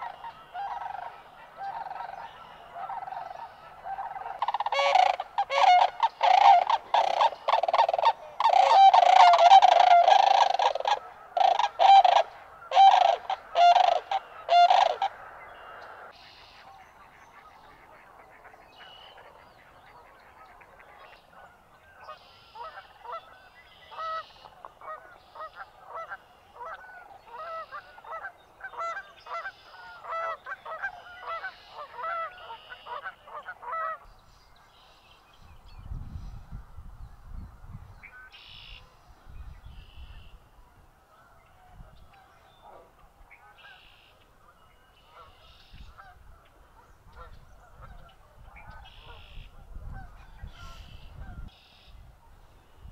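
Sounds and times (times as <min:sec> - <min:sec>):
cranes calling: 0:00.0 - 0:16.7, 0:22.0 - 0:34.1.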